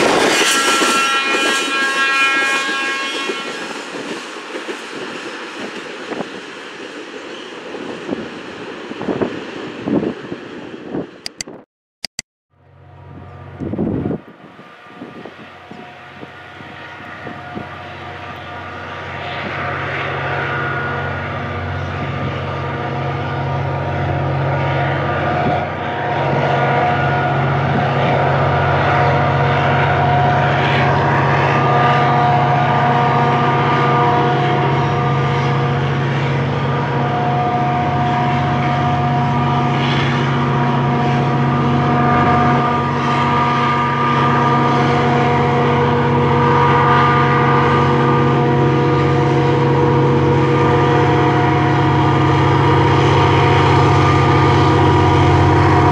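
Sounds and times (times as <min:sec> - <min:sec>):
diesel locomotive engine drone: 0:00.0 - 0:55.9
whining tones: 0:12.9 - 0:55.9.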